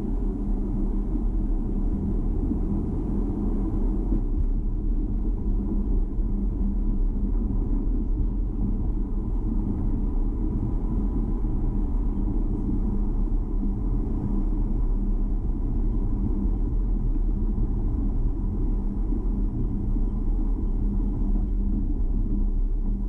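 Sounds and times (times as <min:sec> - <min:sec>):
car engine and road noise: 0:00.0 - 0:23.0.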